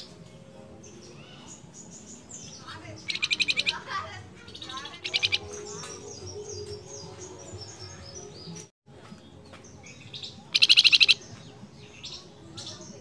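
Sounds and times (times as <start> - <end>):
songbird trilling: 1.1 - 8.4, 9.9 - 13.0
bird twittering: 1.2 - 8.5, 9.9 - 13.0.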